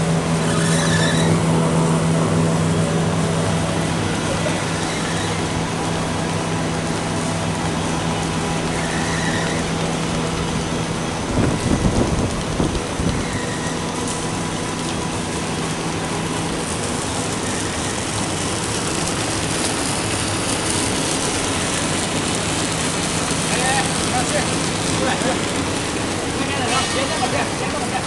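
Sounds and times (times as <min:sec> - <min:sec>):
machinery hiss and hum: 0:00.0 - 0:28.0.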